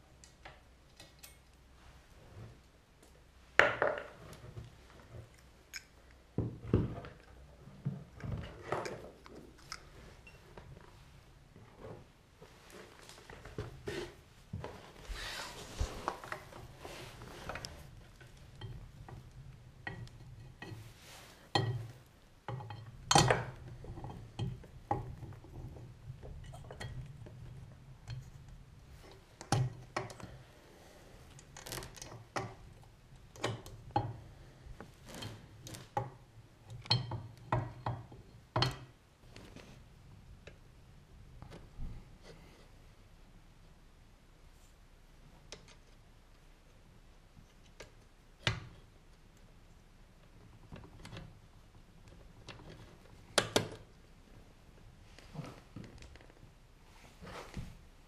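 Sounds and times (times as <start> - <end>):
rustling: 6.8 - 19.6, 20.6 - 22.2.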